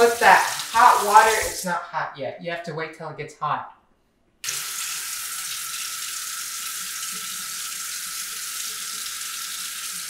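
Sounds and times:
faucet running into steel sink: 0.0 - 1.6, 4.4 - 10.0.

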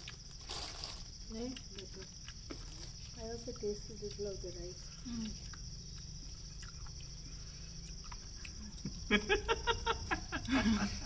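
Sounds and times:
night insects chirring: 0.0 - 11.0
person laughing: 9.1 - 11.0.

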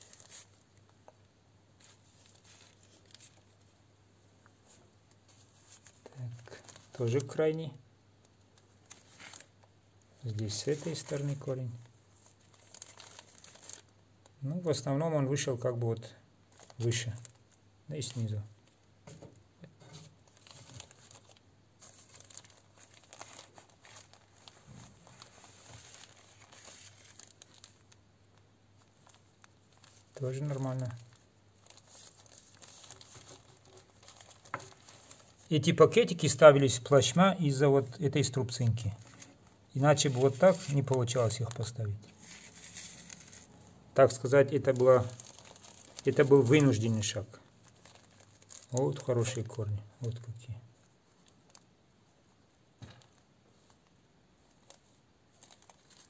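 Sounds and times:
plastic bags rustling: 0.0 - 0.9, 1.8 - 3.7, 4.6 - 7.4, 8.6 - 13.9, 19.8 - 28.0, 28.8 - 37.6, 38.4 - 51.7, 52.8 - 56.0.

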